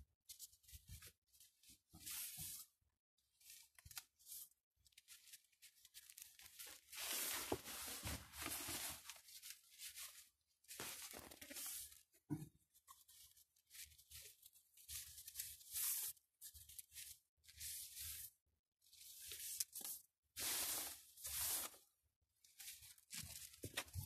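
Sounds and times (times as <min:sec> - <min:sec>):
leaves rustling in hand: 0:20.4 - 0:21.8.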